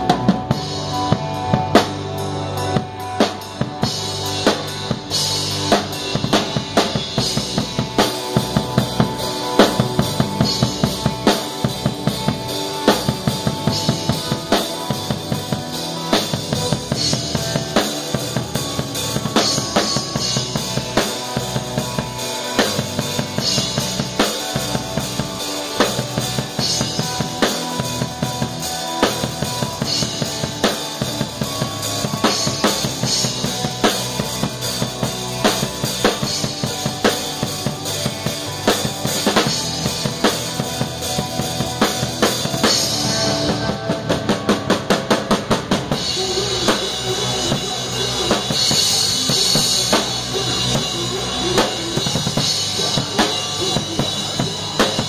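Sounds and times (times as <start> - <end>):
rock band playing live: 0.0 - 55.0.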